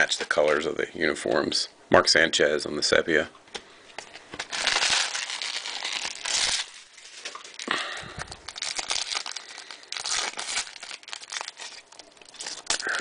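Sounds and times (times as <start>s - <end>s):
foil wrapper crinkling and tearing: 4.4s - 13.0s.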